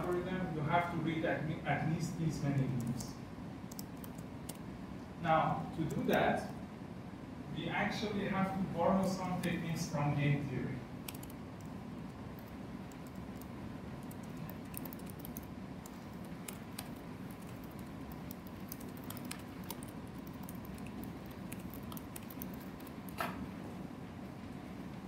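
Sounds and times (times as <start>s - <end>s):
low room hum: 0.0s - 25.0s.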